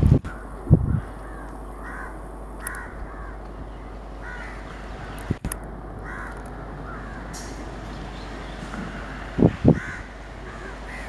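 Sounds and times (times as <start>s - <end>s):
crows cawing: 0.3s - 3.5s, 4.2s - 5.4s, 6.0s - 7.6s, 8.9s - 11.0s.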